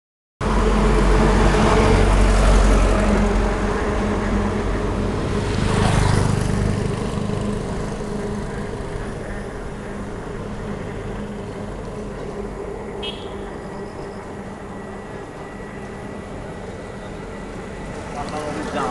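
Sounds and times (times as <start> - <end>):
vehicle rushing past: 0.4 - 14.1
vehicle engine rumbling: 0.4 - 18.9.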